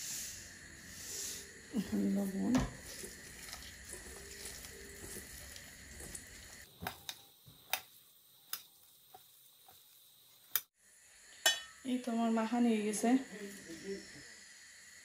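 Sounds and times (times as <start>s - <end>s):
soft squishing of hand mixing food: 1.8s - 10.6s.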